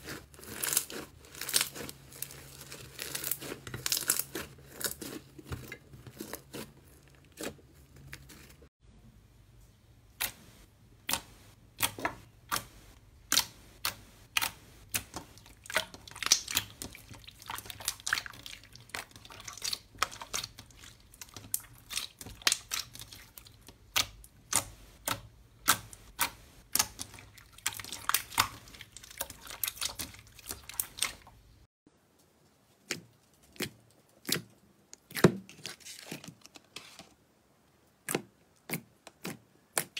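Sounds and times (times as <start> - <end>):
slime clicking and popping: 13.3 - 16.9.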